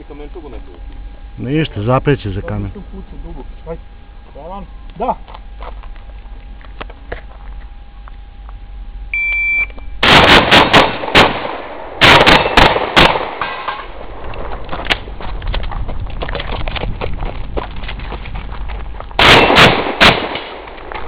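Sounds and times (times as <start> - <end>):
shot timer beep: 9.1 - 9.9
shotgun shots: 10.0 - 14.0, 19.2 - 21.0.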